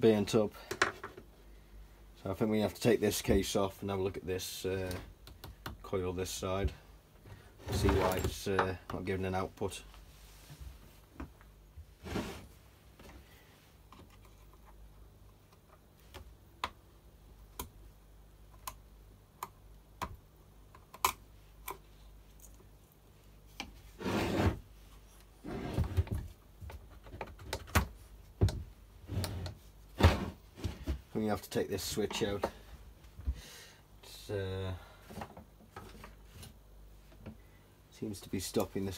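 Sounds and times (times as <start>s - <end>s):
short rubbing scrapes: 12.0s - 12.5s, 23.9s - 24.6s.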